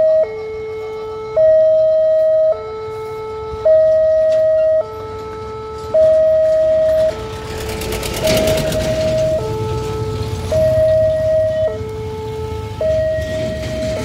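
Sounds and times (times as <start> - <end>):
level crossing two-tone alarm: 0.0 - 14.0
truck engine passing: 3.9 - 14.0.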